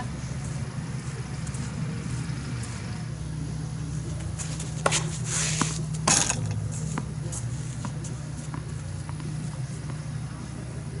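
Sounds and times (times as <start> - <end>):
steady low hum: 0.0 - 11.0
shoes sliding on clay: 4.2 - 6.0
racket striking tennis ball: 4.6 - 7.1.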